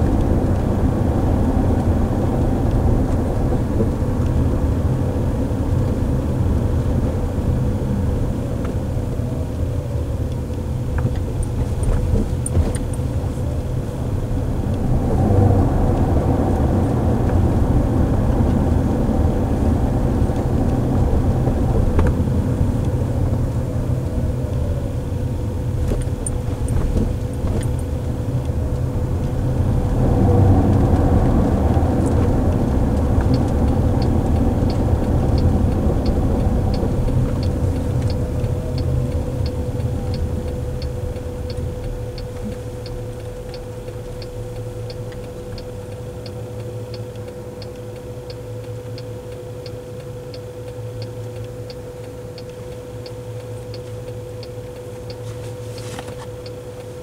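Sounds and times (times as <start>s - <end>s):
faint steady hum: 0.0s - 57.0s
road and tyre rumble in car: 0.0s - 57.0s
faint high ticks: 30.7s - 57.0s.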